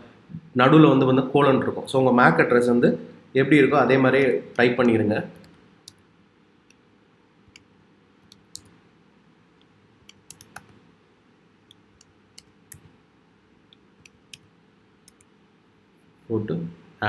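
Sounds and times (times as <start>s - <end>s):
keyboard typing: 10.0s - 10.7s.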